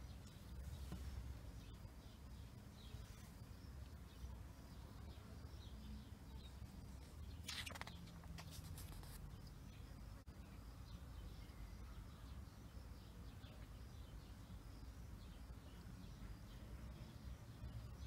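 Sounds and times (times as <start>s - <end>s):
low steady hum: 0.0s - 18.0s
paper page turning: 7.4s - 9.2s.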